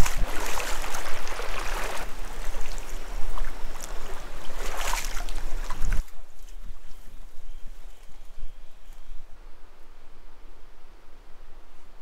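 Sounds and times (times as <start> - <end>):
water splashing around legs: 0.0 - 6.2
river flowing: 0.0 - 8.8.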